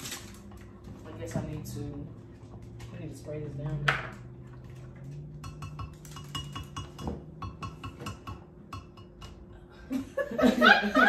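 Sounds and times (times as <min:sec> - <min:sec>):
utensil clinking against glass: 0:05.1 - 0:09.4.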